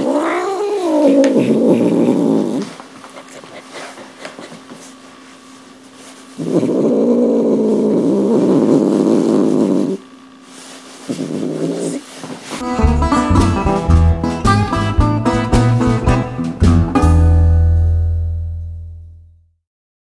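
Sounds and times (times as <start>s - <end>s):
cat purring loudly: 0.0s - 4.0s, 6.3s - 10.2s, 11.0s - 12.2s
acoustic blues guitar music: 12.6s - 18.2s.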